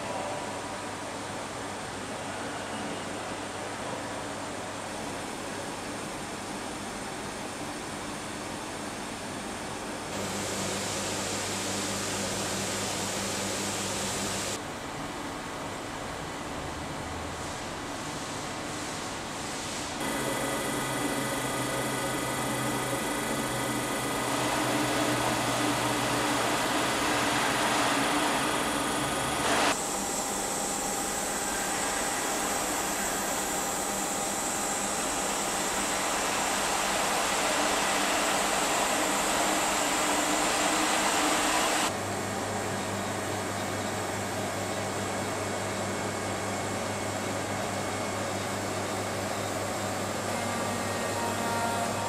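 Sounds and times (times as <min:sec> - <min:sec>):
machine hiss with high whine: 0:00.0 - 0:14.6, 0:17.2 - 0:52.0
hydraulic pump motor hum: 0:10.1 - 0:14.6, 0:20.0 - 0:42.0.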